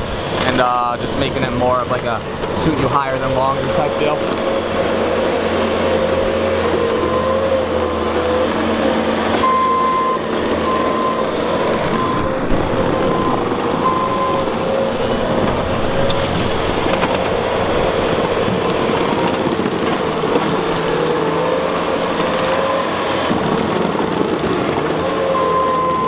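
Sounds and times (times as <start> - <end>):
diesel engine under load: 0.0 - 26.0
repeated beeping tone: 9.4 - 14.8, 25.4 - 26.0.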